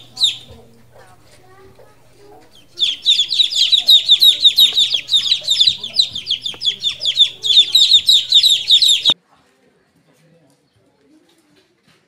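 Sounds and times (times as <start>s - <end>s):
chicks peeping: 0.0s - 9.2s.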